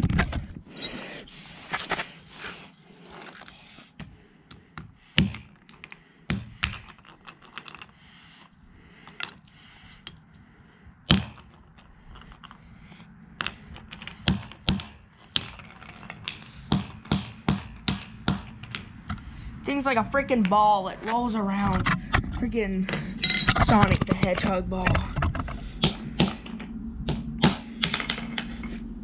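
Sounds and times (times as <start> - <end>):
hammer knocking on concrete: 16.7 - 18.5.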